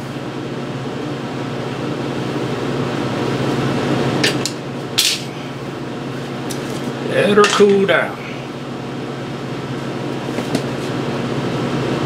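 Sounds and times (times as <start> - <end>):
welder electrical hum and fan: 0.0 - 12.0.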